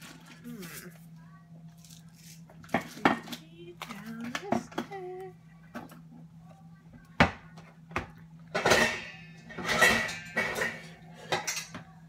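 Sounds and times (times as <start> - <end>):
low steady hum: 0.0 - 12.0
dishes rattling and clattering: 7.2 - 11.9.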